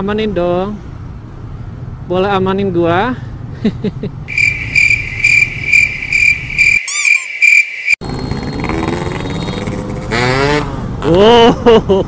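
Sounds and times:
cricket chirping: 4.3 - 8.0
motorcycles running in traffic: 7.9 - 12.0.

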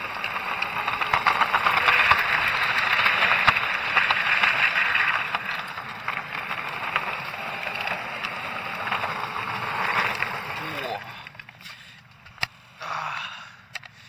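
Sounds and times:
wheels hissing on asphalt: 0.0 - 14.0.

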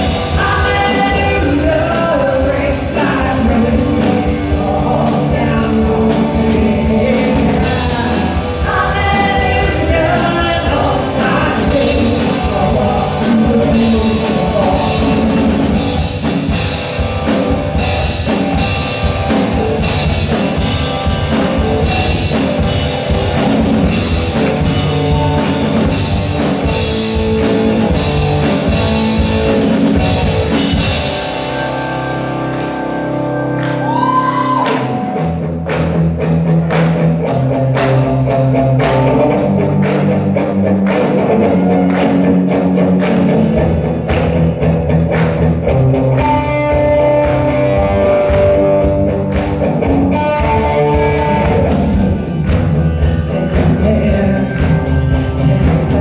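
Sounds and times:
person singing: 0.0 - 16.3, 33.7 - 35.4, 50.1 - 56.0
band playing rock song: 0.0 - 56.0
drum kit: 0.0 - 56.0.

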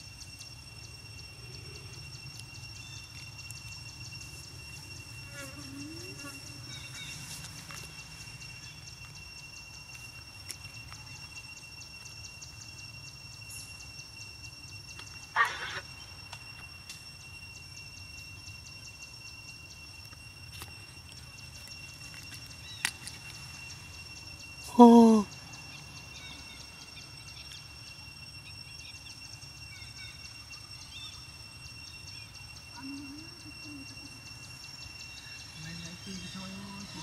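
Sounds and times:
high ringing: 0.0 - 22.7.

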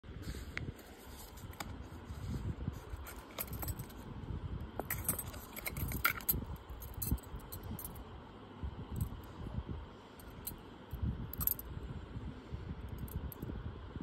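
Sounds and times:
bangles clinking and jingling: 3.1 - 4.0, 4.8 - 8.0, 11.3 - 11.7.

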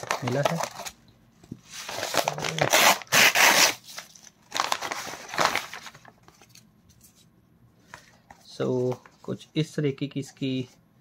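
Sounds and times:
paper mailer crinkling: 1.8 - 6.6.

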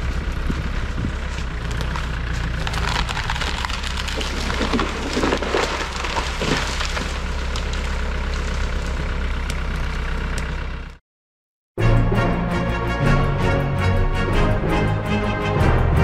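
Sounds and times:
wood and brush cracking: 0.0 - 10.6
tractor engine running: 0.0 - 11.0.

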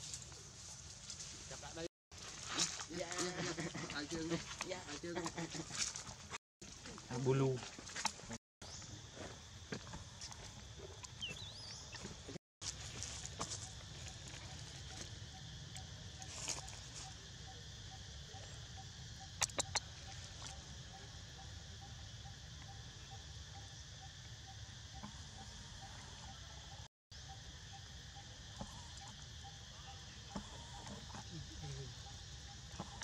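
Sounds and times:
high insect hum: 0.0 - 33.0
sharp clicks: 19.4 - 19.8.

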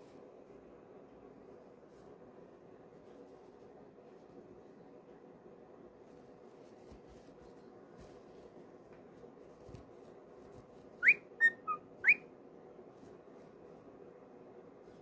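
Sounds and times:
cockatiel whistling: 11.0 - 12.2.

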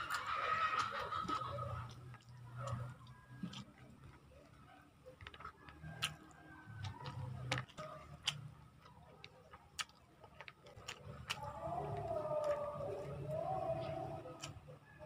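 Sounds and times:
chewing and smacking: 0.0 - 15.0.

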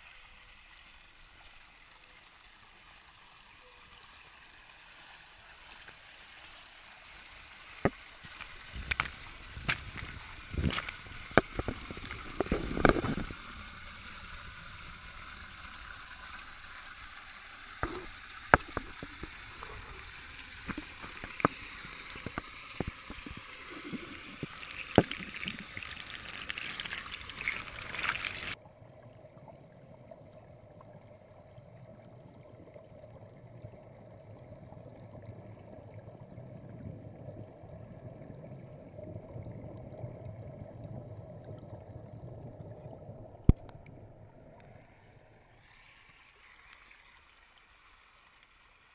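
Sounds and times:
water splashing and trickling: 0.0 - 48.9
muffled underwater hum: 17.8 - 25.6.

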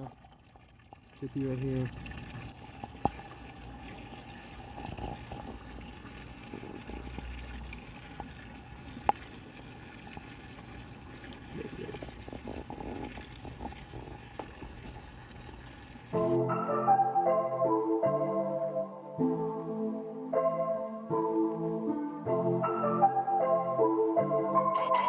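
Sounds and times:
pond water washing: 0.0 - 16.4.

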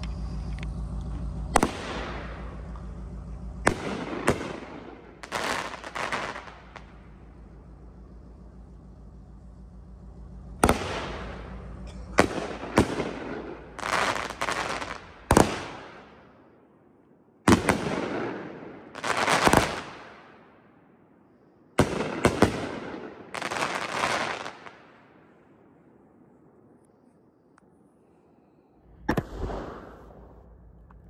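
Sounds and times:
firework shells bursting: 0.0 - 9.7, 10.3 - 16.1
fireworks crackling after bursts: 0.0 - 16.1, 17.5 - 20.3, 21.8 - 25.0.

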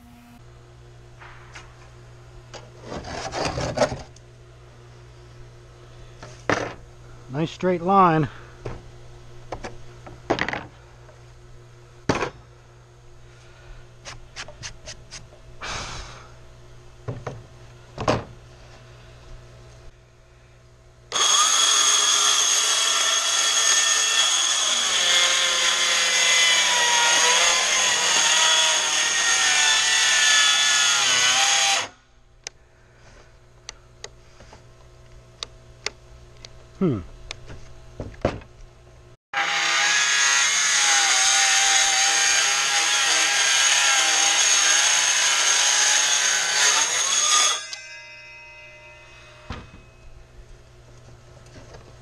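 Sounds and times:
circular saw cutting wood: 0.0 - 0.4, 21.1 - 32.0, 39.4 - 50.0.

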